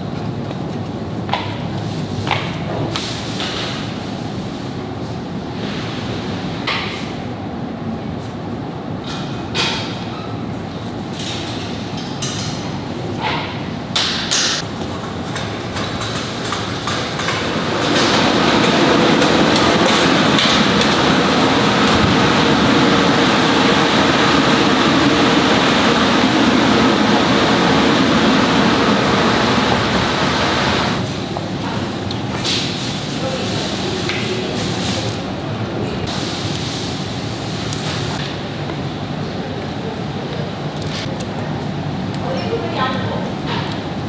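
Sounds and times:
rushing machine noise: 15.4s - 31.0s.

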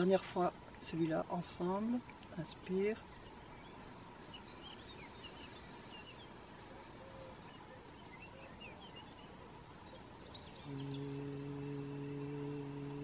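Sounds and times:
small birds chirping: 0.0s - 13.0s
woman humming low tone: 10.6s - 13.0s.

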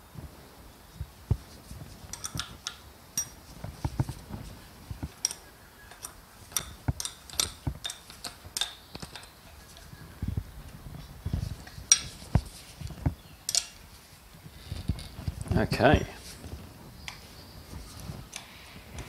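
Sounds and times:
spanner clinking against bolts: 2.1s - 3.5s, 5.2s - 9.9s, 13.5s - 13.8s.

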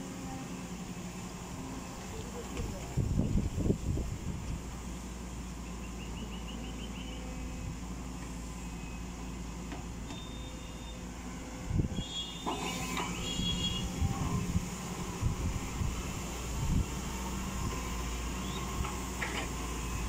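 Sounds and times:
excavator diesel engine running: 0.0s - 20.0s
high squeals: 12.0s - 14.0s.

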